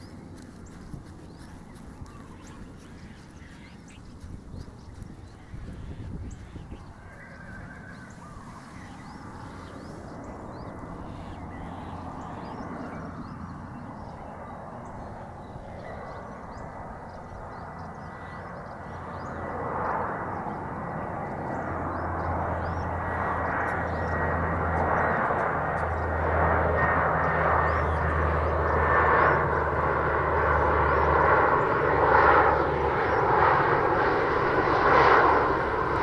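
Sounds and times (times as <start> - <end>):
airplane engine hum: 0.0 - 36.0
birds chirping: 0.0 - 36.0.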